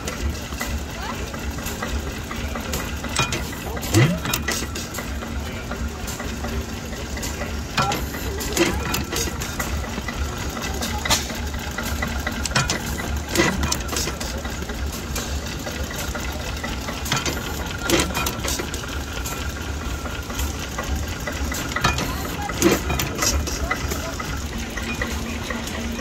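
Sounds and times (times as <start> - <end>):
low engine rumble: 0.0 - 26.0
stationary engine clicking: 0.0 - 26.0.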